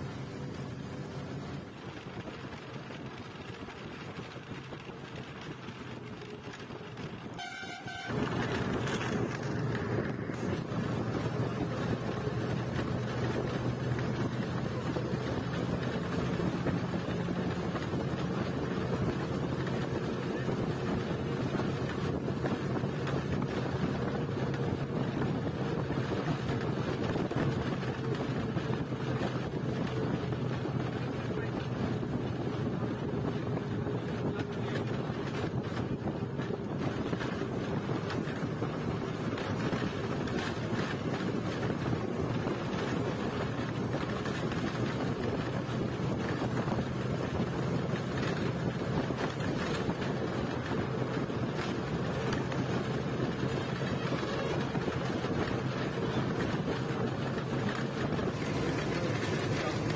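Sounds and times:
bus engine hum and road noise: 0:00.0 - 0:59.9
horn toot: 0:07.3 - 0:08.5.

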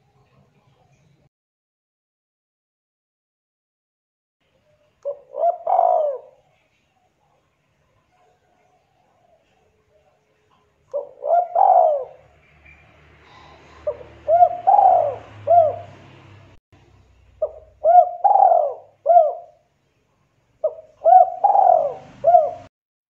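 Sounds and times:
dove cooing: 0:05.0 - 0:06.6, 0:10.9 - 0:16.3, 0:17.4 - 0:19.7, 0:20.6 - 0:22.7.

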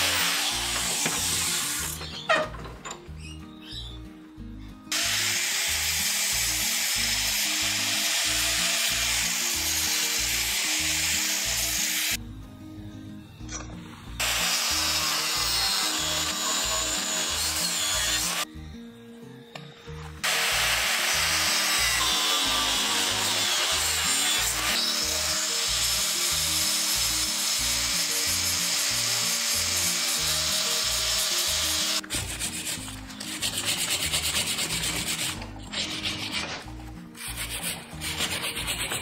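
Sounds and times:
angle grinder grinding steel: 0:00.0 - 0:02.5, 0:04.9 - 0:12.2, 0:13.6 - 0:18.5, 0:20.2 - 0:39.0
background music: 0:00.0 - 0:39.0.

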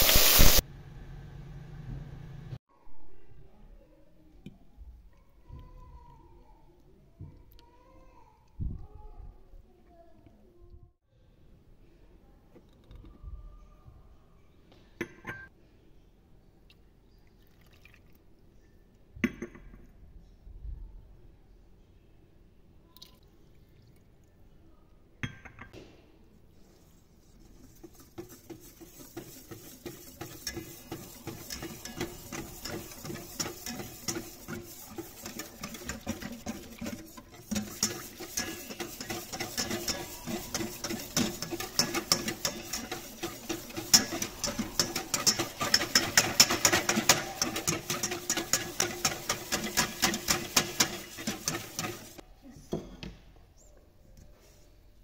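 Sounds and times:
whisk clicking against metal pot: 0:27.2 - 0:52.2.

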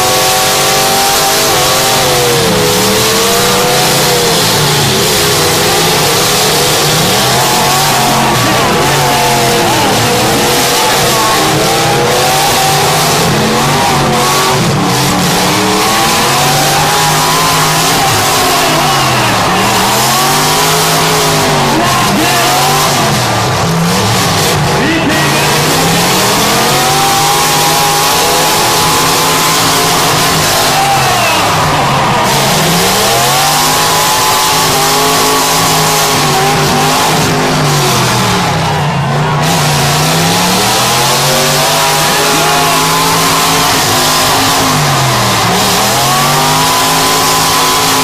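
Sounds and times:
car engines revving: 0:00.0 - 0:48.0.

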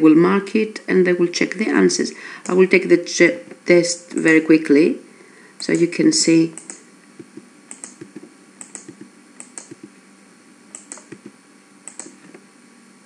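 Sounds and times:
keyboard keystrokes: 0:06.6 - 0:09.9, 0:10.8 - 0:11.3, 0:11.9 - 0:12.4
mouse clicks: 0:06.6 - 0:09.9, 0:10.7 - 0:11.3, 0:11.9 - 0:12.4.

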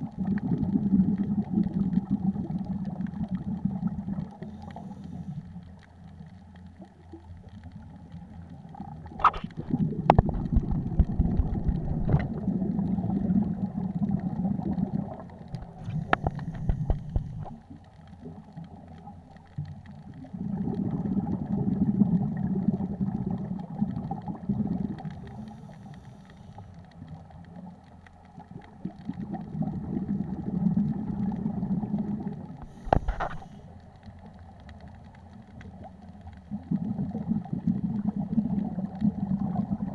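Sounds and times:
bubbles rumbling underwater: 0:00.0 - 0:26.2, 0:26.8 - 0:39.9.

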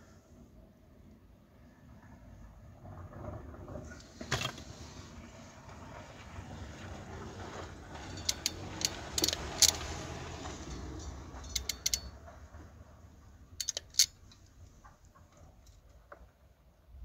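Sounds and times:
crimping pliers clicking: 0:08.2 - 0:09.9, 0:11.4 - 0:12.1, 0:13.6 - 0:14.5.

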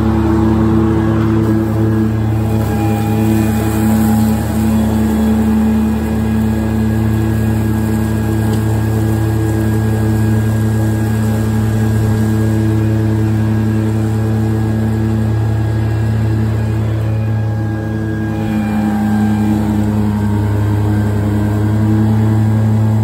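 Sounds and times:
diesel mower engine running: 0:00.0 - 0:23.0
mower blades cutting grass: 0:00.0 - 0:23.0.

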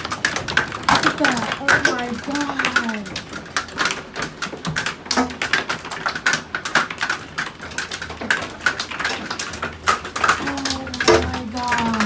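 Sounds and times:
large hailstones pelting: 0:00.0 - 0:12.0.

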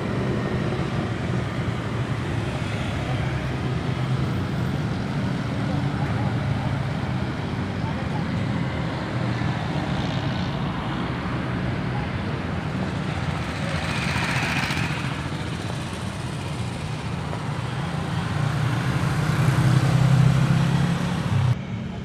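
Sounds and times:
cars passing: 0:00.0 - 0:22.0
motorcycles passing: 0:00.0 - 0:22.0.

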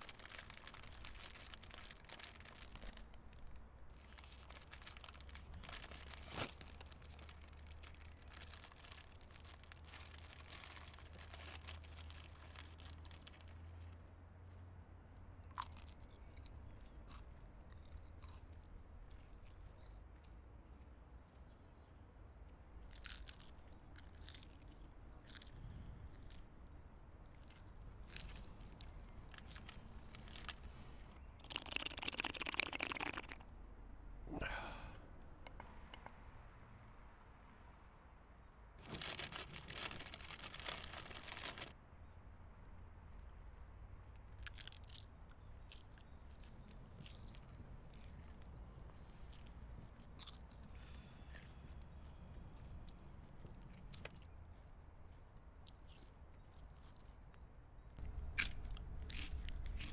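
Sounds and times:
paper wrapper crinkling: 0:00.0 - 0:13.8, 0:28.1 - 0:33.4, 0:38.8 - 0:41.7
crunchy chewing: 0:00.0 - 0:14.0, 0:15.4 - 0:20.4, 0:22.8 - 0:33.5, 0:38.8 - 0:41.8, 0:44.1 - 0:59.9
slurp through a straw: 0:31.3 - 0:33.4.

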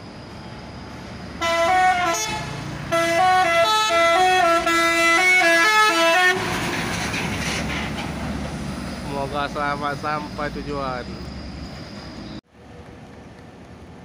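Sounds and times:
bus engine running: 0:00.0 - 0:14.0
musical bus horn tune: 0:01.4 - 0:06.6.

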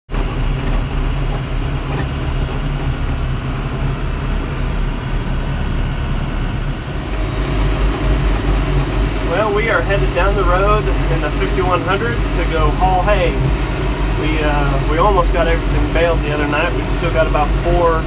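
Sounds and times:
road noise: 0:00.1 - 0:18.0
tractor diesel engine droning: 0:00.1 - 0:18.0.

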